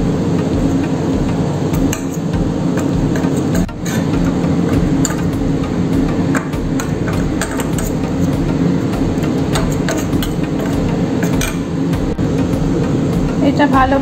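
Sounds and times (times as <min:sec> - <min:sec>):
steady low hum: 0:00.0 - 0:14.0
spoon scraping steel bowl: 0:01.9 - 0:05.4, 0:06.3 - 0:11.8.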